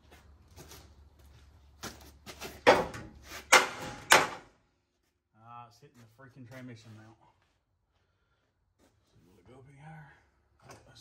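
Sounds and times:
loud metal knocks: 0:02.6 - 0:04.5.

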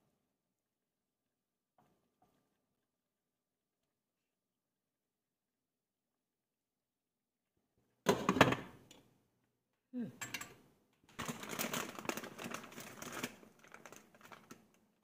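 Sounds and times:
plastic bag crinkling: 0:11.2 - 0:15.0.

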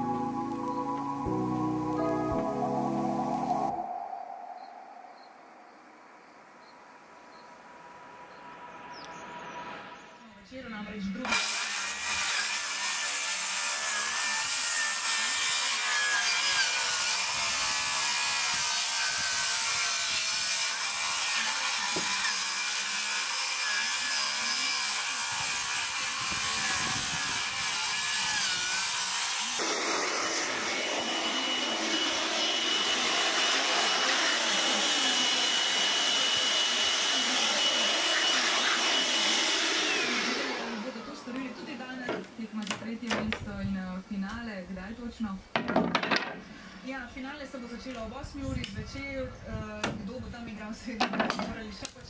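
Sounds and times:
cordless power tool cutting wood: 0:11.2 - 0:42.3
leaf blower high whine: 0:25.9 - 0:42.0.

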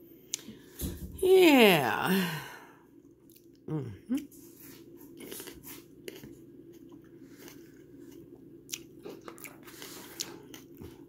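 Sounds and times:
person chewing with wet clicks: 0:03.1 - 0:03.7, 0:05.2 - 0:11.0.

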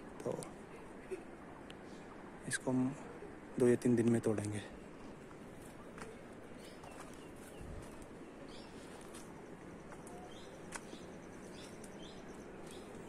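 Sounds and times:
faint bird chirps: 0:05.7 - 0:13.0.

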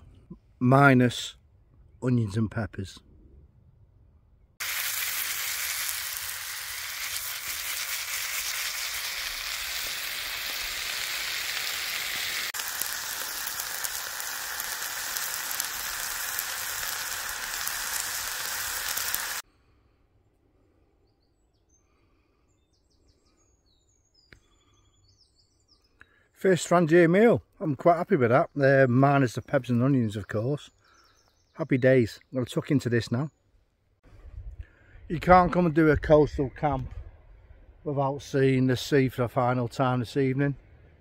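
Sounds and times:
food sizzling in frying pan: 0:04.6 - 0:19.4
faint bird chirps: 0:20.6 - 0:26.4.

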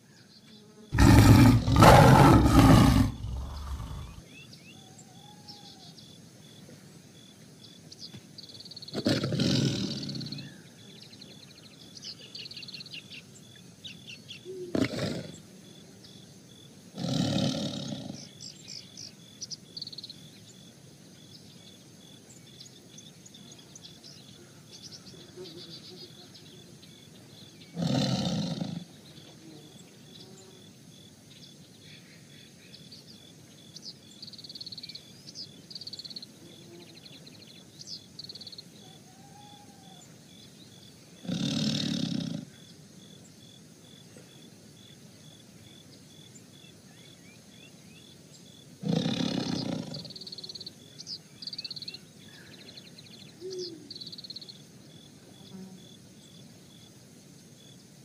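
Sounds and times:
birds chirping: 0:01.0 - 0:04.2
tiger roaring: 0:01.0 - 0:04.2, 0:09.0 - 0:10.2, 0:14.7 - 0:15.3, 0:27.8 - 0:28.9, 0:41.2 - 0:42.5, 0:48.8 - 0:50.1.

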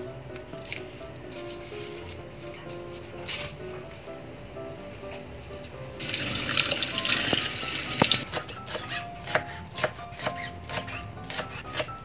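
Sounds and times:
tap water running: 0:06.0 - 0:08.2
knife chopping on wooden board: 0:08.2 - 0:12.0.

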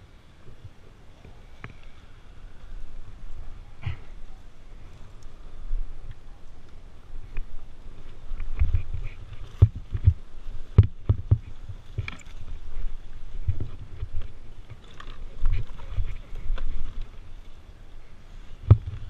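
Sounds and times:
dirt bike engine rumble: 0:00.0 - 0:19.0
knocks and thumps: 0:09.5 - 0:10.2, 0:18.7 - 0:19.0.

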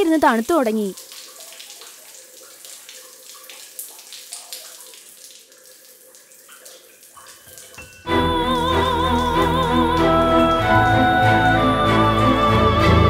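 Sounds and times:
shower water running: 0:00.0 - 0:13.0.

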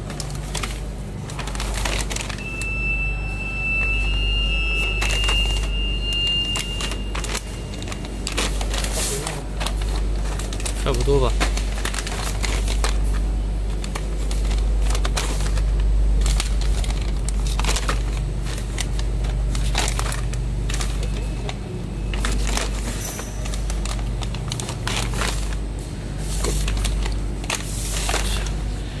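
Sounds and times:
plastic pouches crinkling: 0:00.0 - 0:29.0
steady low hum: 0:00.0 - 0:29.0.

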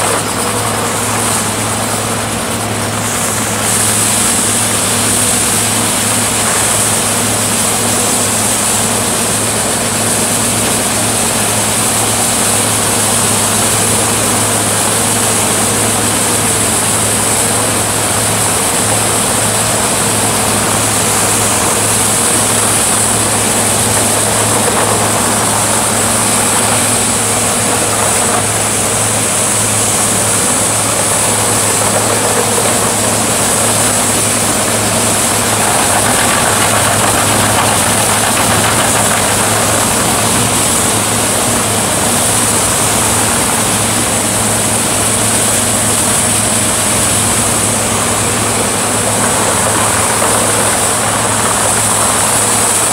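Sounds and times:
heavy engine droning: 0:00.0 - 0:52.9
debris hissing and rattling: 0:17.9 - 0:46.0.

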